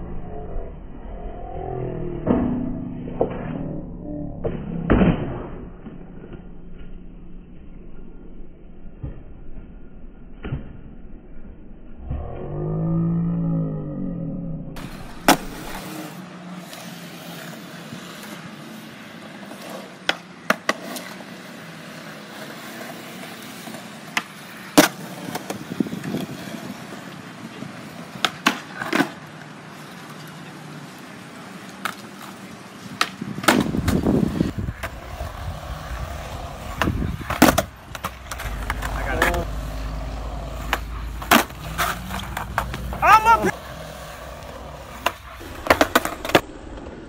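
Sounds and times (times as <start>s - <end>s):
low rumble: 0.0s - 15.8s, 33.8s - 47.0s
skateboard wheels rolling on concrete: 2.2s - 47.0s
skateboard clacks: 14.8s - 47.0s.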